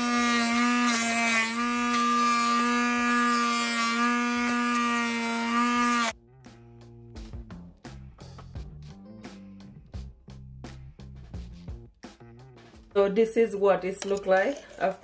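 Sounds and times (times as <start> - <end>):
hand blender motor whine: 0.0 - 6.2.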